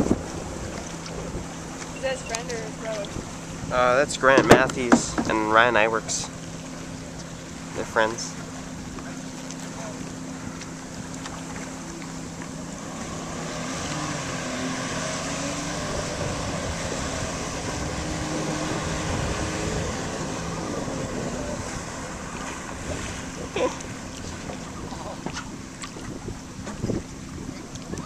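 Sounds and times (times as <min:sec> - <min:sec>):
wind on microphone: 0:00.0 - 0:05.6, 0:12.6 - 0:28.0
personal watercraft engine: 0:00.0 - 0:28.0.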